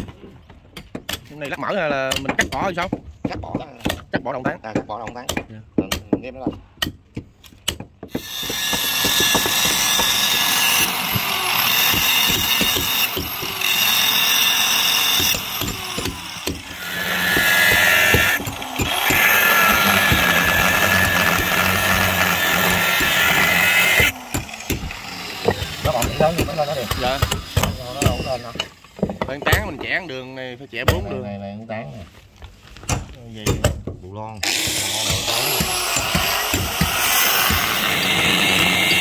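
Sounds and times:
handheld power tool cutting: 8.1 - 29.0, 34.4 - 39.0.

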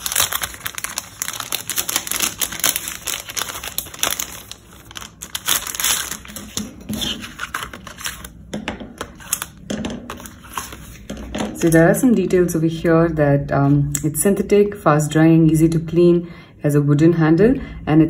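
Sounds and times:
plastic packaging crinkling: 0.0 - 11.9.

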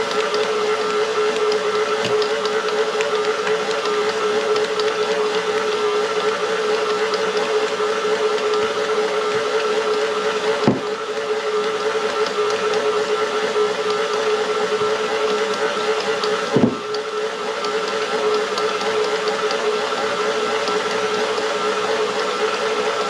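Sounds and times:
stand mixer motor hum: 0.0 - 23.0
brief knock: 10.6 - 10.9, 16.6 - 16.8.

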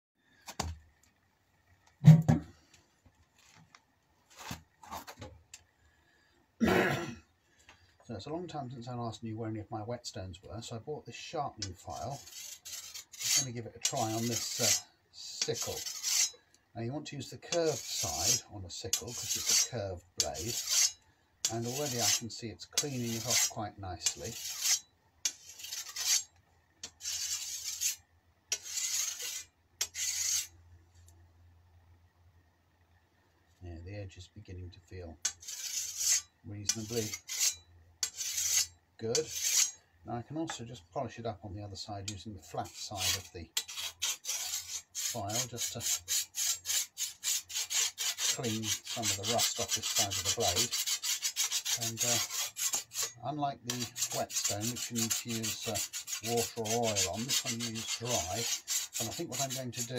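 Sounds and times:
loud thump: 2.0 - 2.5
tools scraping and rustling: 4.3 - 5.4, 11.6 - 16.4, 17.5 - 31.2, 35.2 - 39.8, 42.1 - 59.9
file stroking steel blade: 11.6 - 16.5, 17.5 - 30.5, 35.2 - 39.8, 42.1 - 59.9.

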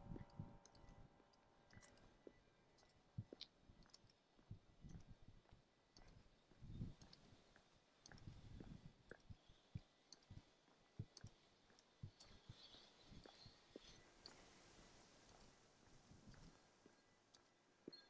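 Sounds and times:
small clicks: 0.0 - 2.1, 7.0 - 15.5
muffled footsteps on asphalt: 1.7 - 18.0.

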